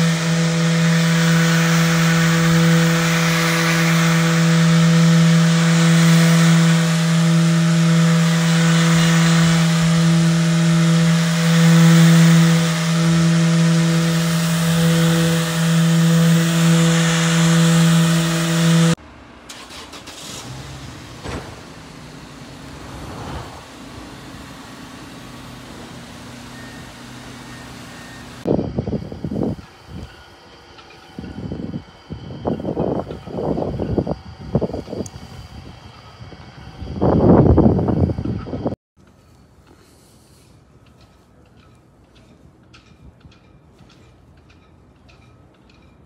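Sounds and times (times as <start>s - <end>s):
orbital sander running: 0.0s - 19.0s, 21.0s - 38.7s.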